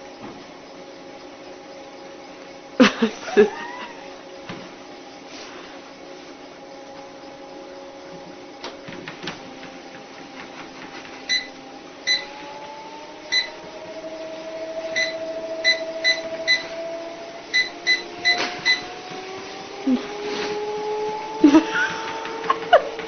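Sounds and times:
treadmill motor whine: 0.0s - 23.0s
control panel beeps: 11.3s - 12.3s, 13.3s - 13.6s, 14.9s - 16.7s, 17.5s - 18.9s.

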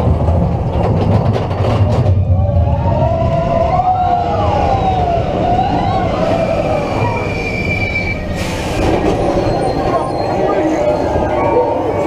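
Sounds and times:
roller coaster rumbling on track: 0.0s - 12.0s
wheels squealing: 3.7s - 12.0s.

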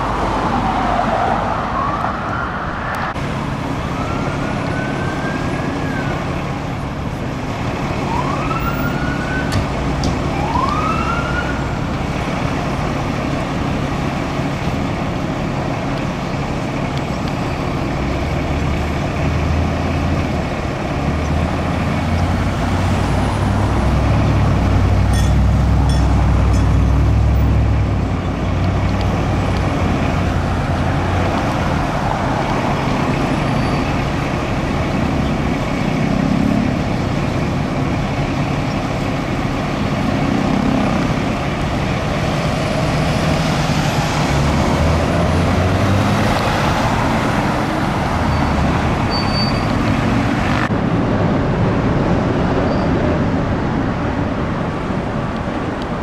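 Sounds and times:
street traffic noise: 0.0s - 56.0s
police siren whoops: 0.2s - 3.2s, 3.8s - 6.3s, 8.0s - 9.5s, 10.3s - 11.8s.

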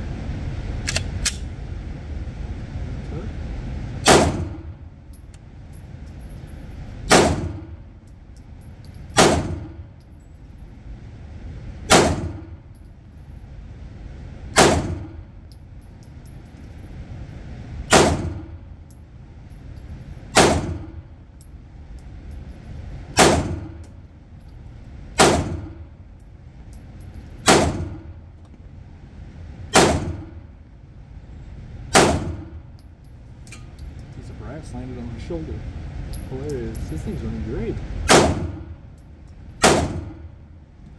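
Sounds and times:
pistol shots with echo: 4.0s - 4.6s, 7.1s - 7.8s, 9.2s - 9.8s, 11.9s - 12.5s, 14.6s - 15.1s, 17.9s - 18.5s, 20.4s - 20.9s, 23.2s - 23.8s, 25.2s - 25.8s, 27.4s - 28.1s, 29.7s - 30.4s, 31.9s - 32.6s, 38.1s - 38.7s, 39.6s - 40.2s.

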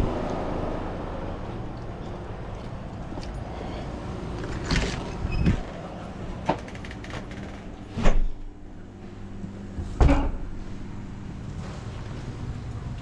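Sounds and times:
steady low hum: 5.2s - 13.0s.

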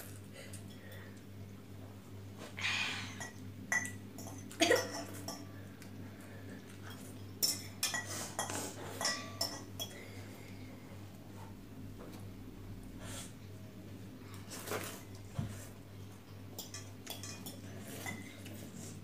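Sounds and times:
metal cutlery clinking on glass bowls: 3.2s - 5.5s, 6.8s - 10.0s, 16.2s - 18.6s.

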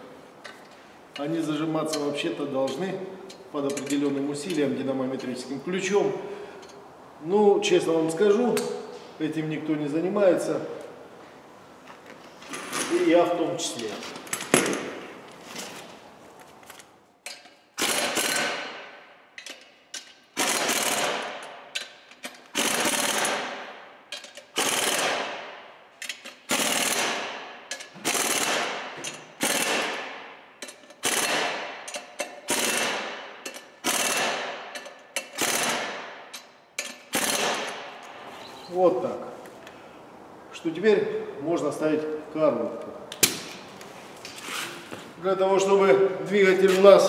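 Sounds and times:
pneumatic impact wrench bursts: 17.8s - 18.9s, 20.3s - 25.4s, 26.1s - 30.1s, 30.9s - 36.2s, 36.9s - 37.9s.

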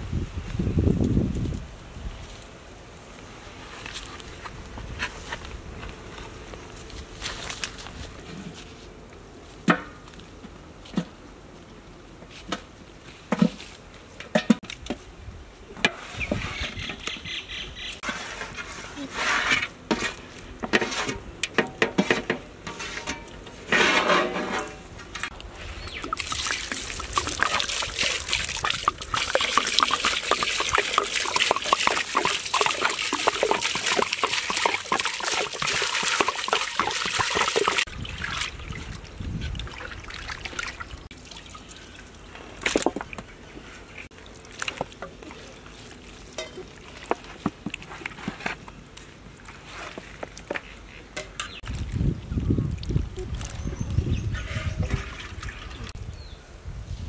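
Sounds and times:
water pouring and splashing: 22.7s - 43.3s, 44.0s - 48.5s, 51.6s - 56.0s.

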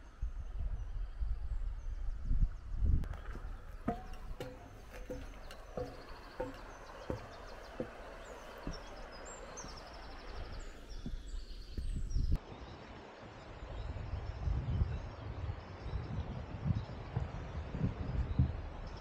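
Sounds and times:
footsteps on wooden planks: 3.0s - 12.4s
river water rushing: 3.1s - 10.8s
birds chirping: 3.1s - 12.4s.

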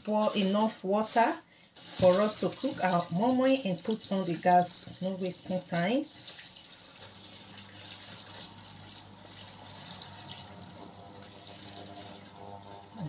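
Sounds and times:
water pouring into metal pot: 6.2s - 13.0s.

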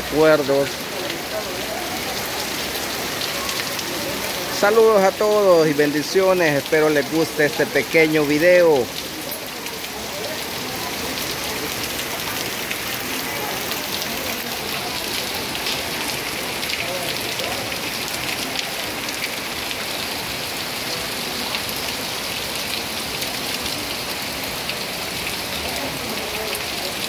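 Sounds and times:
heavy rain on wet street: 0.0s - 27.0s
drops splashing into puddles: 5.4s - 27.0s.

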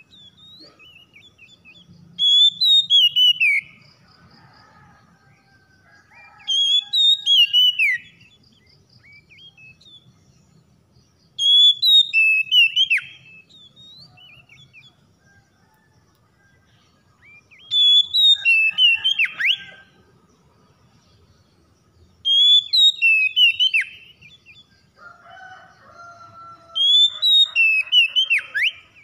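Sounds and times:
bird singing whistled notes: 0.0s - 3.8s, 6.2s - 15.0s, 17.2s - 19.9s, 22.2s - 24.8s, 26.7s - 29.0s.

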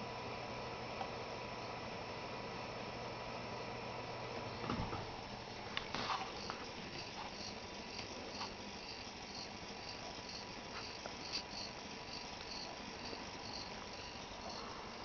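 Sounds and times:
faint steady tone: 6.2s - 15.0s.

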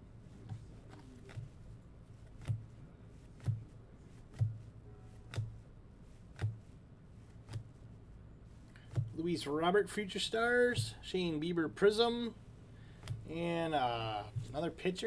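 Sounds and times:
trading cards being flipped: 2.2s - 7.8s.

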